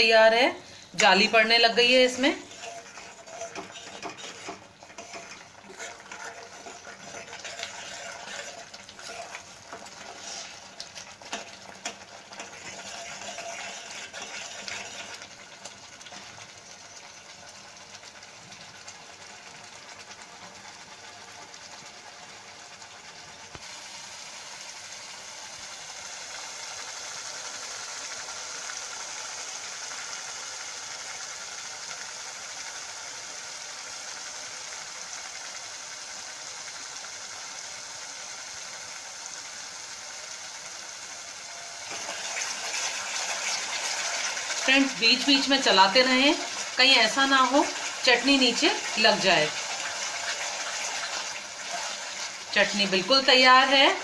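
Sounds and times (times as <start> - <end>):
chutney sizzling and bubbling in oil: 0.0 - 54.0
spoon scraping and knocking a pan: 2.4 - 10.5.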